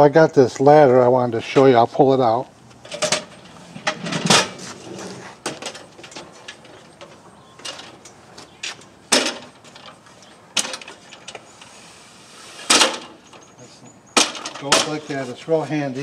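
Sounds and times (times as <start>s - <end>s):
metal step ladder clattering: 2.8s - 4.6s, 8.6s - 10.0s, 10.6s - 11.4s, 14.2s - 15.0s.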